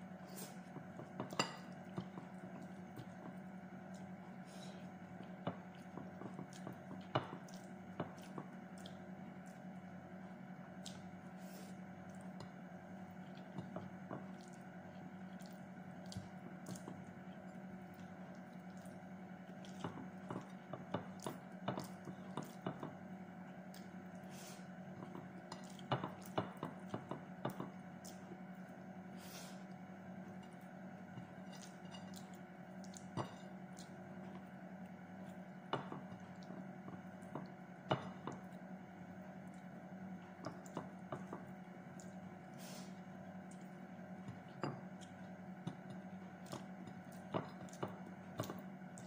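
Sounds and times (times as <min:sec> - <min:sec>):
steady low hum: 0:00.0 - 0:49.0
wet chewing and lip smacks: 0:31.6 - 0:34.2.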